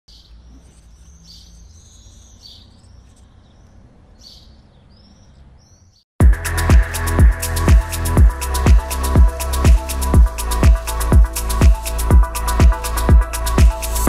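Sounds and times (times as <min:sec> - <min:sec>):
birds chirping and whistling: 0:00.1 - 0:06.0
house music with kick drum: 0:06.2 - 0:14.0.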